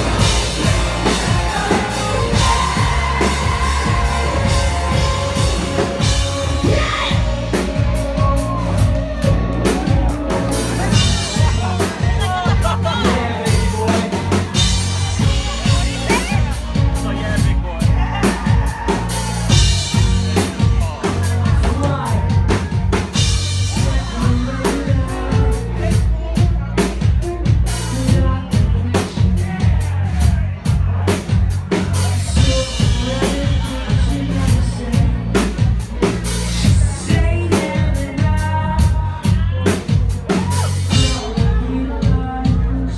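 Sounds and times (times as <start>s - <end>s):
heavy drum hits: 0.0s - 12.9s
drum kit beating: 0.0s - 42.9s
live band playing loudly: 0.0s - 42.9s
person singing: 0.0s - 42.9s.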